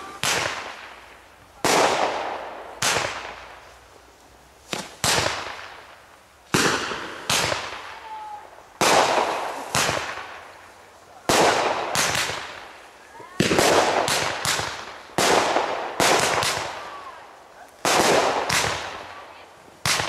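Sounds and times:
fireworks bursting bangs: 0:00.0 - 0:04.0, 0:04.6 - 0:20.0.

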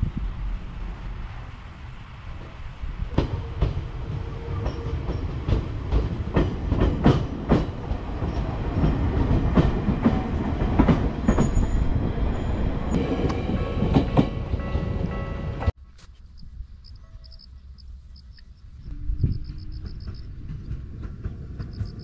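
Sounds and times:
train rumble: 0:00.0 - 0:15.8, 0:16.9 - 0:22.0
wheels clattering over rail joints: 0:19.5 - 0:22.0.

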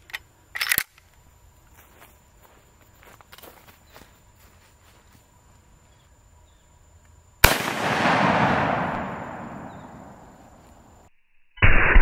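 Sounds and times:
rifle shot: 0:07.4 - 0:10.5
rolling echo: 0:07.4 - 0:10.9.

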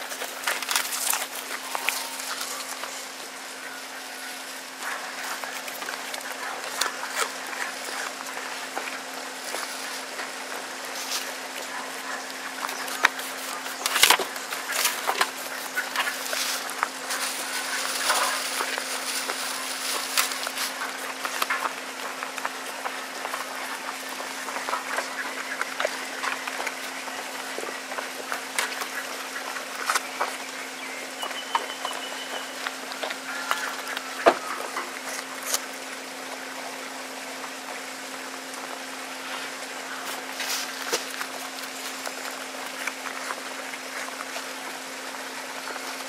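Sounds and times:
goat crunching apple: 0:00.0 - 0:03.2, 0:04.3 - 0:46.0.

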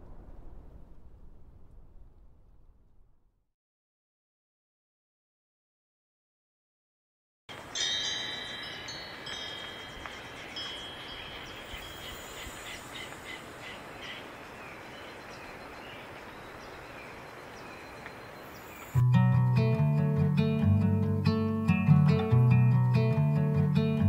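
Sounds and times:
chimes ringing: 0:07.5 - 0:12.4
acoustic guitar strumming: 0:19.0 - 0:24.0.

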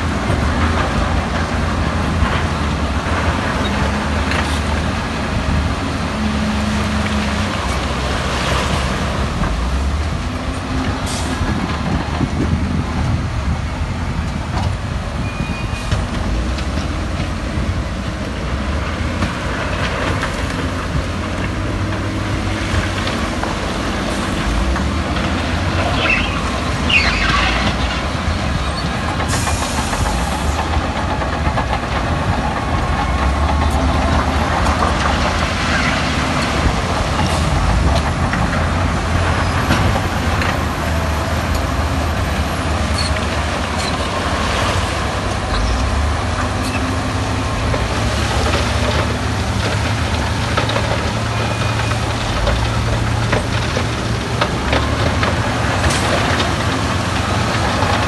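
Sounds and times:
diesel machinery engine rumble: 0:00.0 - 0:58.0
high squeals: 0:26.0 - 0:27.6.

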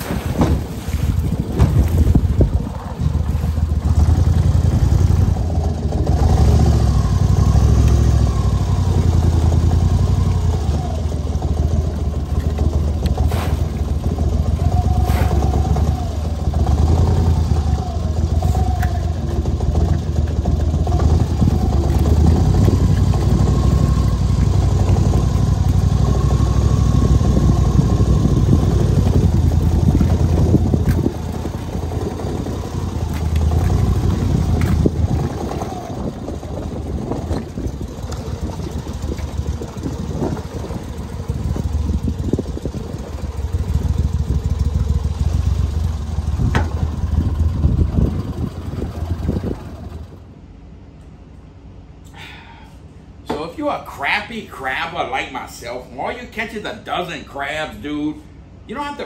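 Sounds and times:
wind on microphone: 0:00.0 - 0:07.3, 0:20.8 - 0:44.9, 0:45.8 - 0:50.2
boat motor idling: 0:00.0 - 0:50.7.

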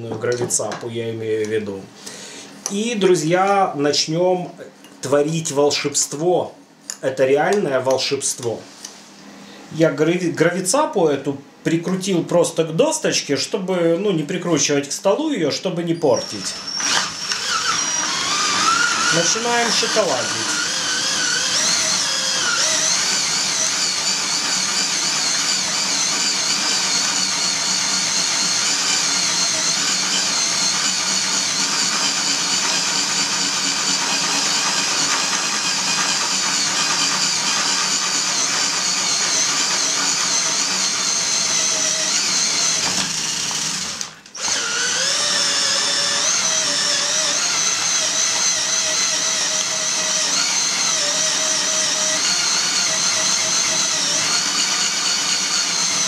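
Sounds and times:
electric drill motor whine: 0:16.2 - 0:56.0.

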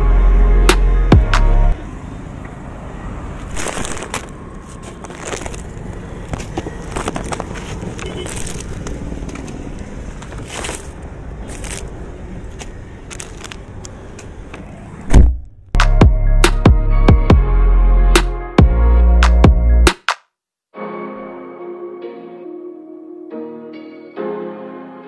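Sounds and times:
outdoor background noise: 0:00.0 - 0:16.6
phone handling rustles and scrapes: 0:03.4 - 0:09.6.

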